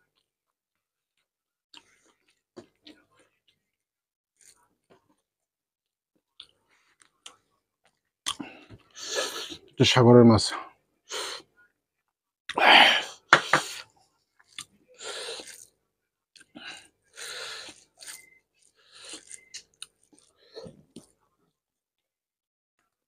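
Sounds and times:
chewing and mouth noises: 0:13.6 - 0:21.1.

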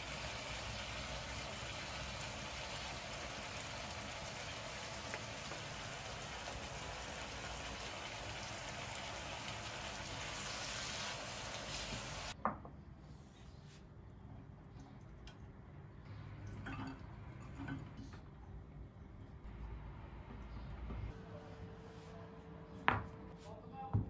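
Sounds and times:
food sizzling in a frying pan: 0:00.0 - 0:12.4.

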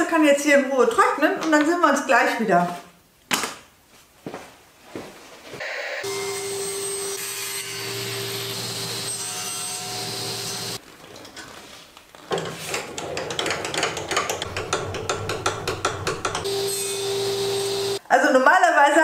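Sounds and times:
table saw cutting wood: 0:06.0 - 0:10.8, 0:14.3 - 0:18.0.

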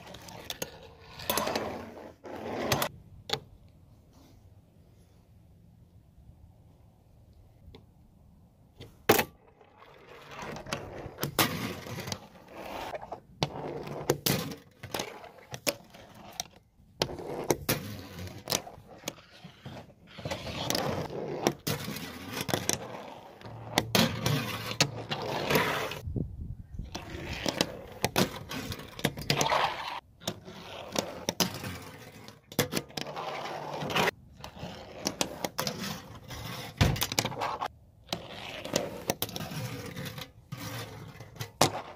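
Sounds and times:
small wheels rolling on plastic: 0:09.4 - 0:26.0, 0:26.8 - 0:41.9.

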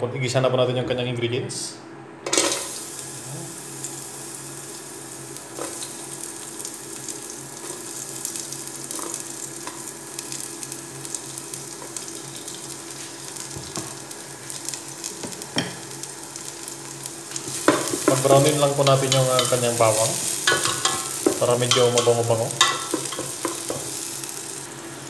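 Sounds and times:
frying hiss and crackles: 0:02.3 - 0:25.0
garlic sizzling in hot oil: 0:02.5 - 0:25.0.

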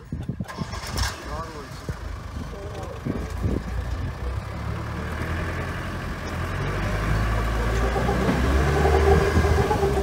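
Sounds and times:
vehicle engine running: 0:00.6 - 0:10.0.

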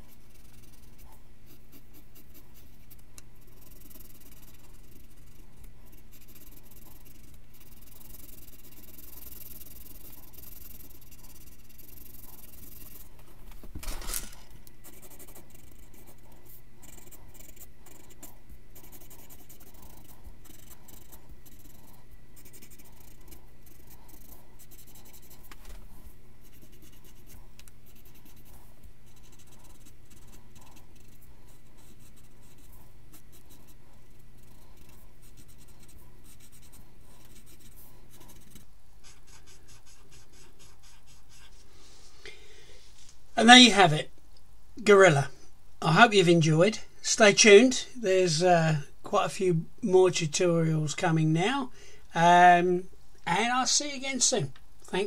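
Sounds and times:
rub across paper: 0:00.0 - 0:13.4, 0:14.4 - 0:42.2
pencil scratching on paper: 0:00.0 - 0:42.0.

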